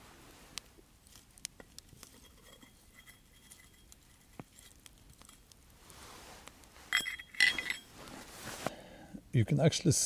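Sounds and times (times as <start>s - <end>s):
campfire crackling and popping: 0.0s - 9.2s.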